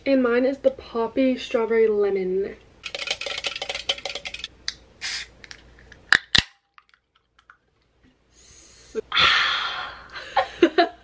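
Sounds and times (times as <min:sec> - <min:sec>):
soda cans popping open: 0:02.9 - 0:07.6.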